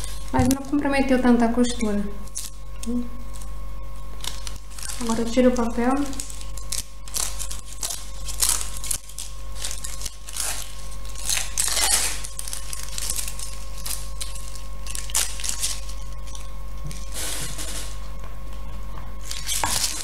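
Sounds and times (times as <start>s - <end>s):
paper tearing and crinkling: 4.2s - 18.0s, 19.2s - 20.0s.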